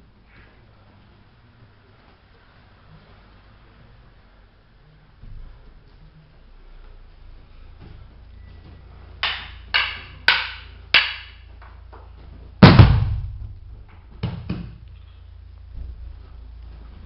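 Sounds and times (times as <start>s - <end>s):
wooden sticks clacking: 9.2s - 12.8s
light thumps: 15.6s - 17.0s.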